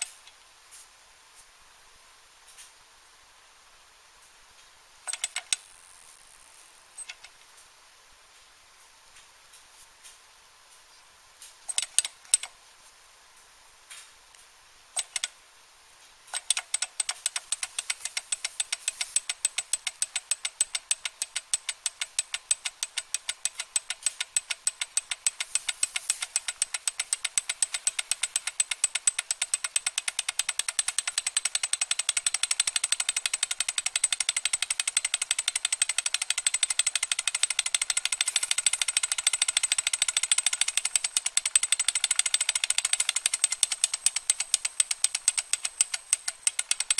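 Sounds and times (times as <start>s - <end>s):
flywheel clicks: 5.1s - 5.7s, 7.0s - 7.4s, 11.7s - 12.5s, 15.0s - 15.3s, 16.3s - 46.9s
stirling engine rapid clicking: 16.3s - 46.9s.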